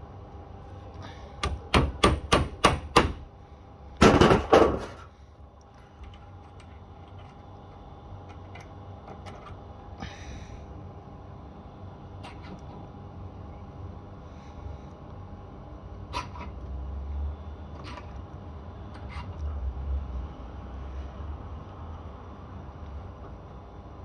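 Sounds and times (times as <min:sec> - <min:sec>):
sharp knocks on metal pipe: 0:01.4 - 0:03.2.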